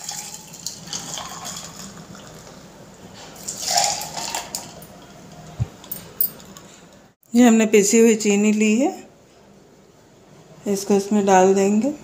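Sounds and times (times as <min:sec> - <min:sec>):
juice pouring over ice: 0:00.0 - 0:02.5, 0:03.4 - 0:04.7.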